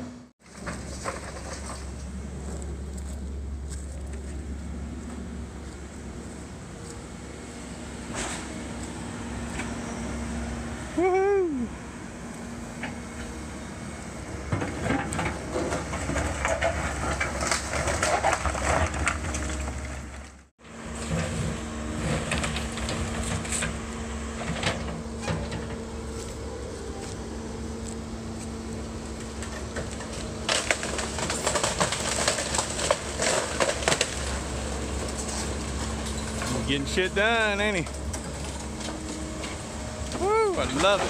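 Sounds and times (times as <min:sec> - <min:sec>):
excavator diesel engine running: 0:00.0 - 0:41.0
falling masonry crashing: 0:14.7 - 0:20.3, 0:29.3 - 0:39.0.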